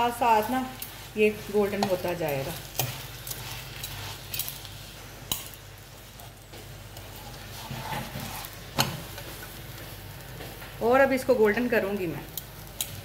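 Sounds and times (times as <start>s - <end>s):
metal spatula scraping frying pan: 0.8s - 4.7s, 7.0s - 9.3s.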